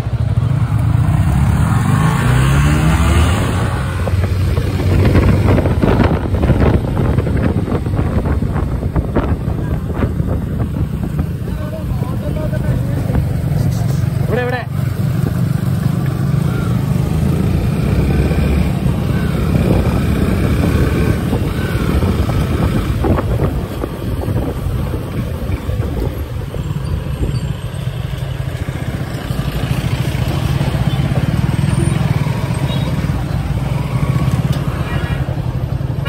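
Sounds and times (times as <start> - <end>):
motorcycle engine running: 0.0 - 36.0.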